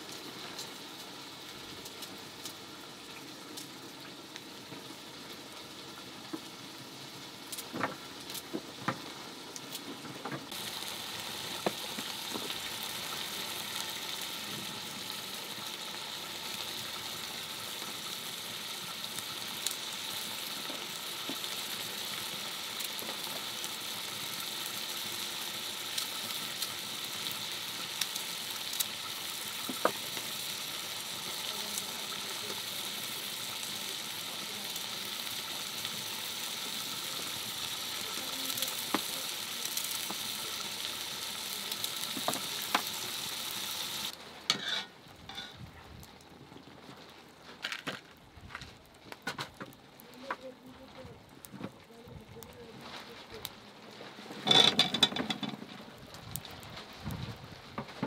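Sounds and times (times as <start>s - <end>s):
food sizzling in a pot: 0.0s - 45.7s, 54.3s - 58.0s.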